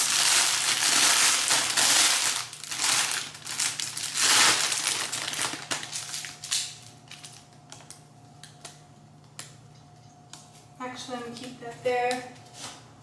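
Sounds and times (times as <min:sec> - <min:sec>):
plastic wrapping crinkling: 0:00.0 - 0:09.5.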